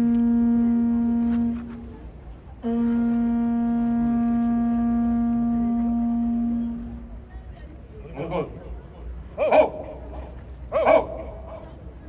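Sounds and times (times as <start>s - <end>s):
horn sounding long blasts: 0.0s - 7.3s.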